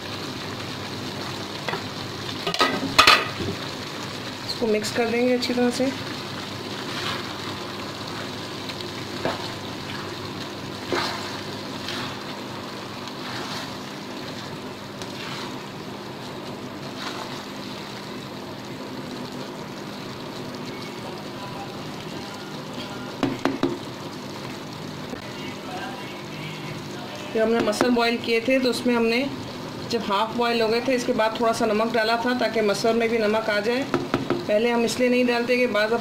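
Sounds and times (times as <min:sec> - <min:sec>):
rice sizzling: 0:00.0 - 0:36.0
spatula scraping a pan: 0:10.9 - 0:12.2, 0:13.2 - 0:13.8, 0:14.4 - 0:15.6, 0:16.9 - 0:17.4.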